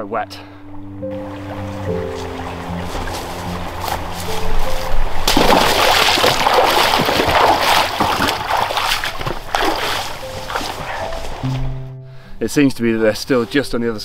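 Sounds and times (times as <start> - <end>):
boots wading through water: 1.1 - 11.5.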